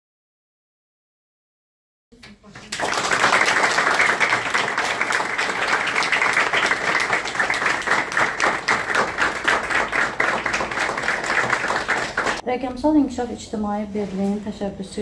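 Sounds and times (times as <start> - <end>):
crowd applause: 2.7 - 12.4.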